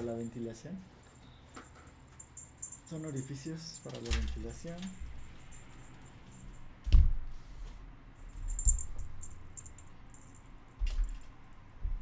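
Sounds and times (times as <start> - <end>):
light clicks and rattles: 1.1 - 6.6.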